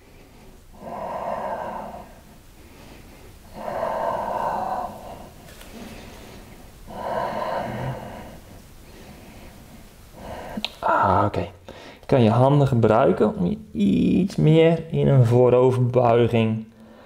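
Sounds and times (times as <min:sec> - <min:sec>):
man breathing deeply: 0:00.0 - 0:12.1, 0:16.8 - 0:17.0.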